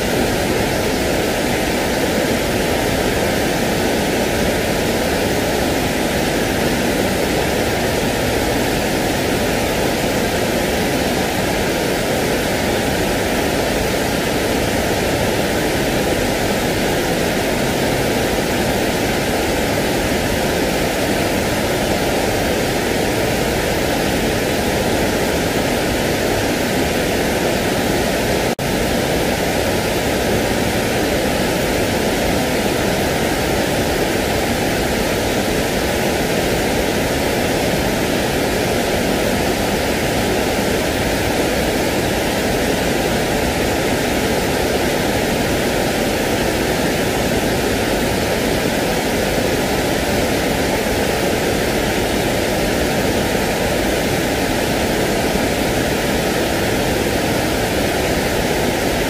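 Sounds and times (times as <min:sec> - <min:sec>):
steady hiss: 0:00.0 - 0:59.0.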